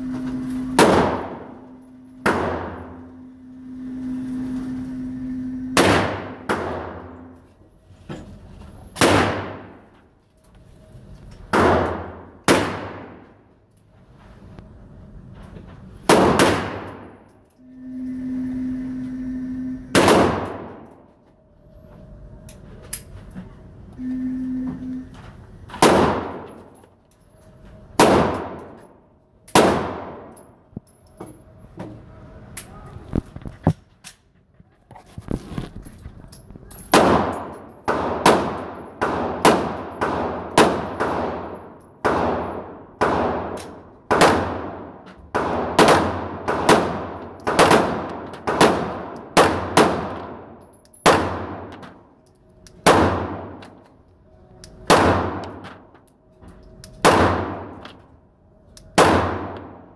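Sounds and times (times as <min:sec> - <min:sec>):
pistol shots with ringing echo: 0:00.8 - 0:01.6, 0:02.2 - 0:03.0, 0:05.8 - 0:07.3, 0:09.0 - 0:09.8, 0:11.5 - 0:13.3, 0:19.9 - 0:20.8, 0:25.8 - 0:26.7, 0:28.0 - 0:28.8, 0:29.5 - 0:30.4, 0:36.9 - 0:51.8, 0:52.8 - 0:53.7, 0:54.8 - 0:55.6, 0:57.0 - 0:57.9, 0:58.9 - 0:59.8.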